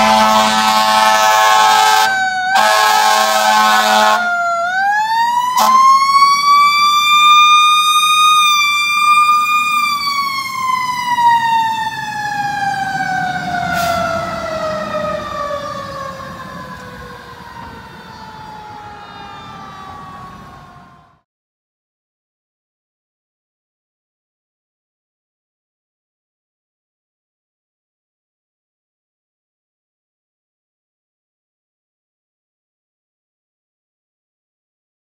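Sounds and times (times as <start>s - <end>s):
fire engine air horns: 0.0s - 4.8s, 5.5s - 7.6s, 13.2s - 20.9s
siren wailing: 0.0s - 21.2s.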